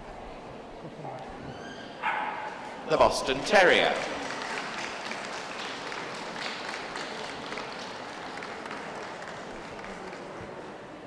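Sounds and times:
audience applauding: 3.0 - 10.9.

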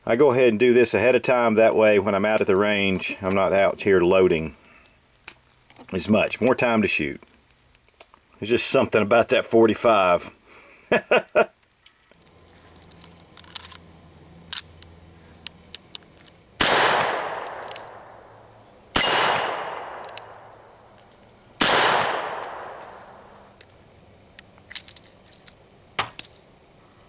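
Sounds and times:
light metallic clicks of revolver: 14.4 - 18.2, 19.0 - 25.6
revolver shots echoing: 16.6 - 20.7, 21.6 - 23.4.

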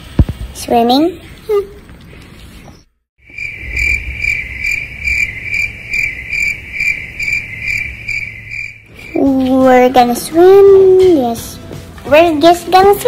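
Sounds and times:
crickets chirping: 3.2 - 9.4.

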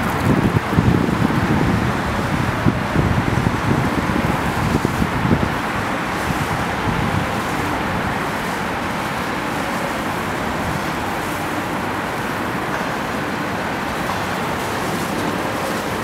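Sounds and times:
boat hull wash through water: 0.0 - 16.0
outboard motors running: 0.0 - 16.0.

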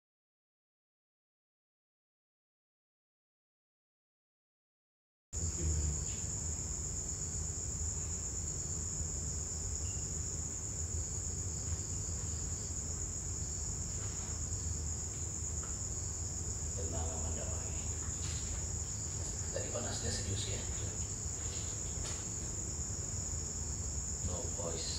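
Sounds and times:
crickets trilling: 5.4 - 24.9.

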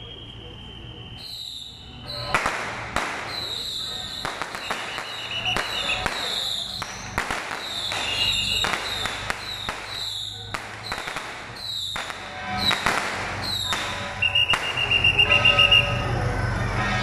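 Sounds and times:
firecrackers banging: 0.0 - 17.0
music: 12.2 - 17.0.

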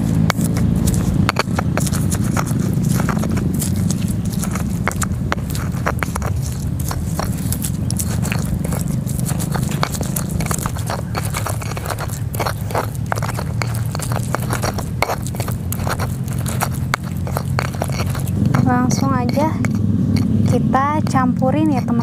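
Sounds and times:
stone pestle grinding in mortar: 0.0 - 22.0.

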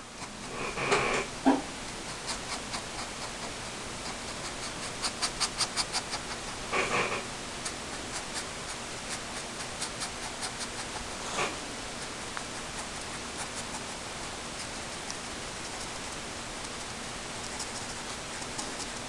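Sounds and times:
steady hiss: 0.0 - 19.0
marker scratching on paper: 1.9 - 14.0
person sniffing: 4.1 - 7.2, 9.4 - 11.7.

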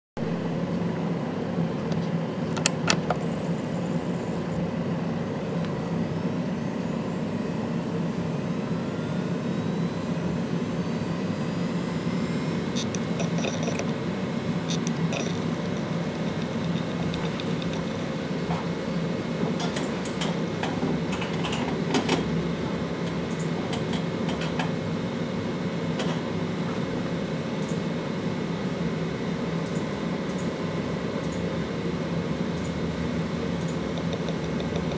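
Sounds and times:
hard drive spinning hum: 0.2 - 34.9
hard drive seek clicks: 12.4 - 22.3, 23.0 - 24.8, 27.6 - 27.9, 29.6 - 30.6, 31.2 - 31.6, 32.4 - 34.9.

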